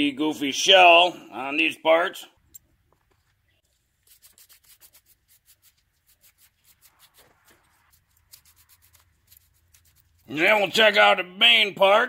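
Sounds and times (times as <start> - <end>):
wire brush scrubbing metal: 4.0 - 10.5.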